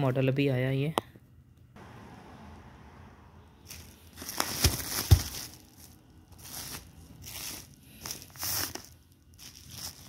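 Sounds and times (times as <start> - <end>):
bubble wrap crinkling: 3.6 - 10.0.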